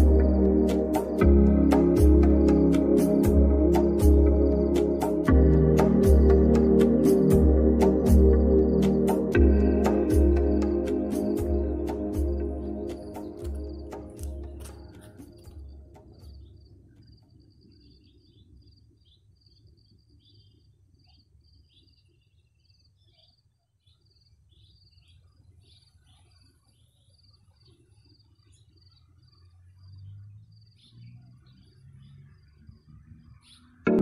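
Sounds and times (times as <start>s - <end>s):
high-pitched chirps: 0.0s - 16.4s
background music: 0.0s - 16.5s.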